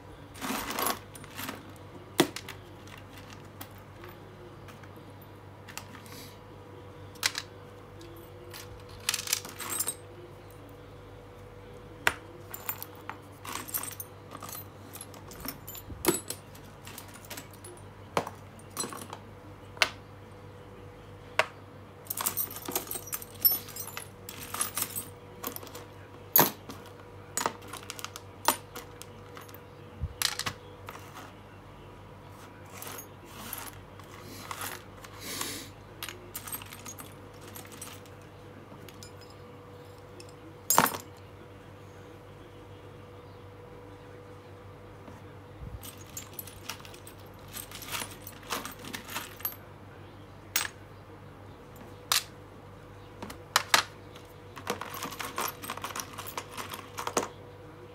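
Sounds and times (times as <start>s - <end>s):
metal screws clinking: 22.1s - 25.8s, 54.6s - 57.2s.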